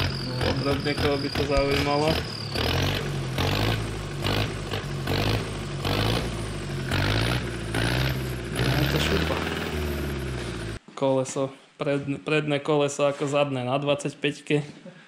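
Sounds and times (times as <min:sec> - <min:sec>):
diesel engine running: 0:00.0 - 0:10.8.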